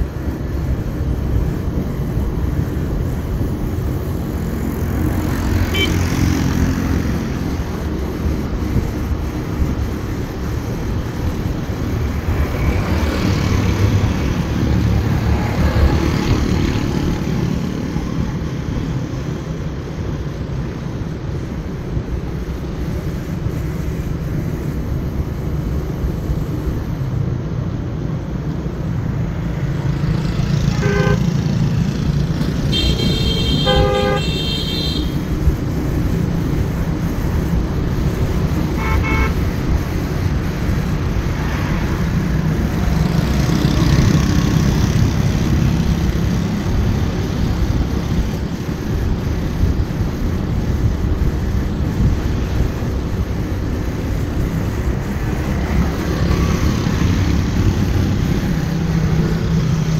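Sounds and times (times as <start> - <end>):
road noise: 0.0 - 59.9
vehicle horns beeping: 5.6 - 6.2, 30.8 - 31.3, 32.7 - 35.2, 38.8 - 39.4
wind on microphone: 31.8 - 59.9.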